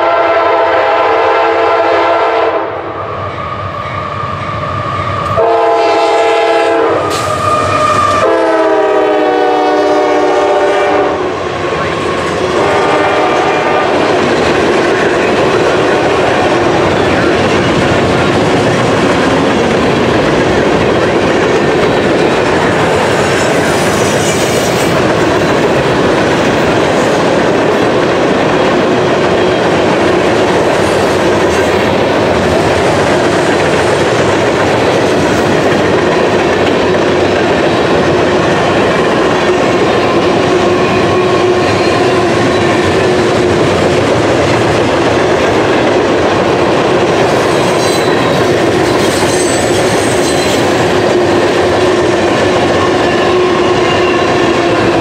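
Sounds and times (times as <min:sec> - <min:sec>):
train wheels rumbling over rail joints: 0:03.5 - 0:55.0
high wheel squeal: 0:07.1 - 0:08.2, 0:47.5 - 0:50.7.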